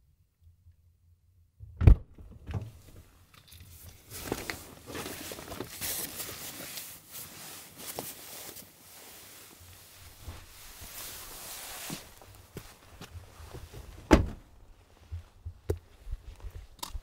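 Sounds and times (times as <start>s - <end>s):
footsteps through dry grass: 4.0s - 14.0s.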